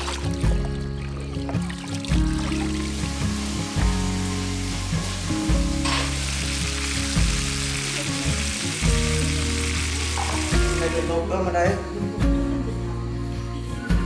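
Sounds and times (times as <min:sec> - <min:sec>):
background music with bass line: 0:00.0 - 0:14.0
food sizzling in a pan: 0:01.5 - 0:11.2.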